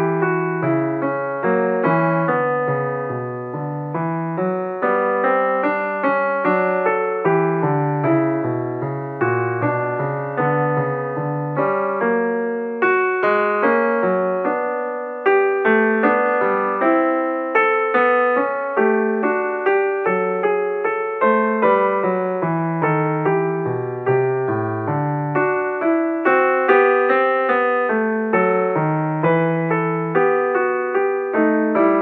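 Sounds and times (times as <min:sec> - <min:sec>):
piano music: 0:00.0 - 0:32.0.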